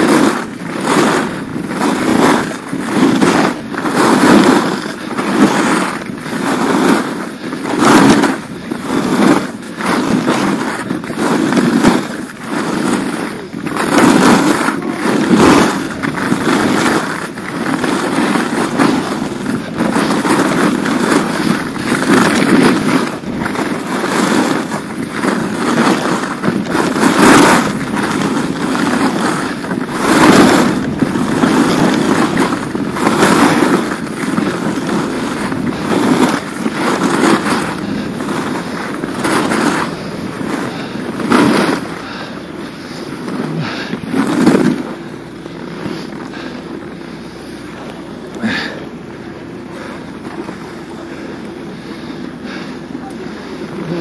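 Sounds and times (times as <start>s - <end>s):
skis scraping over hard snow: 0.0s - 54.0s.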